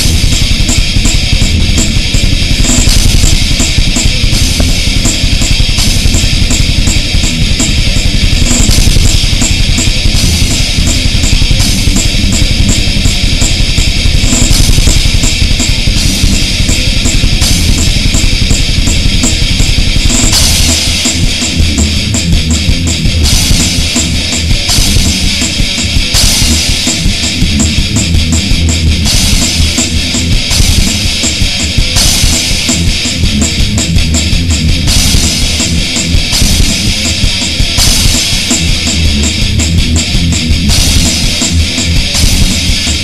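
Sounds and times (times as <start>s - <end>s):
fast cymbal ticks: 0.0s - 28.5s
loud band music: 0.0s - 43.0s.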